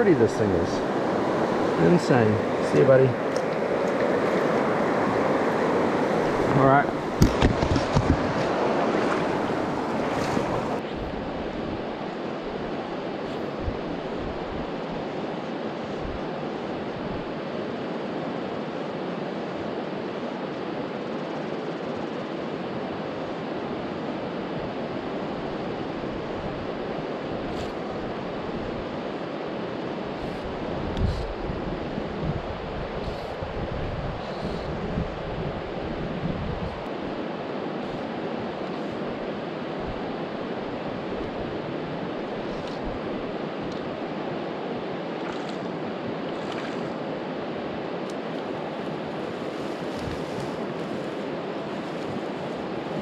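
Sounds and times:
river water rushing: 0.0 - 21.0, 36.9 - 53.0.

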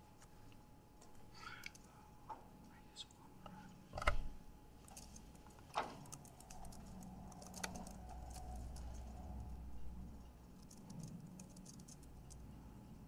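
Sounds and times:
faint room hum: 0.0 - 13.0
laptop keyboard typing: 4.8 - 12.5.

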